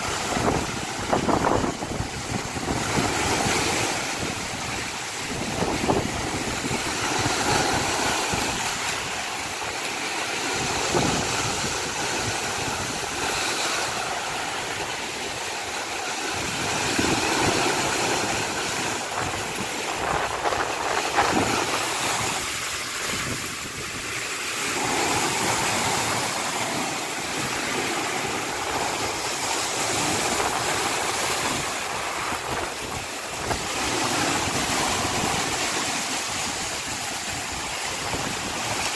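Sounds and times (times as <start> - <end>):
surf breaking on rocks: 0.0 - 38.9
water splashes: 0.0 - 38.9.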